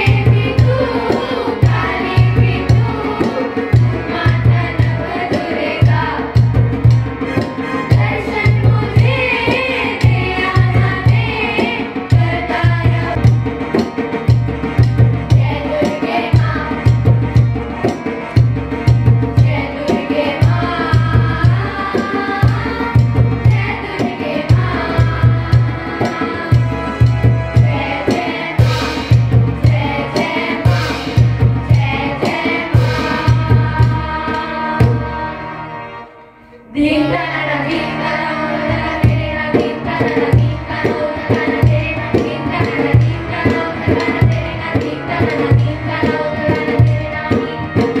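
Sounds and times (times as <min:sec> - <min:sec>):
children singing into microphones: 0:00.0 - 0:14.1, 0:14.7 - 0:36.1, 0:36.7 - 0:48.0
recorded music with drum beat: 0:00.0 - 0:35.1.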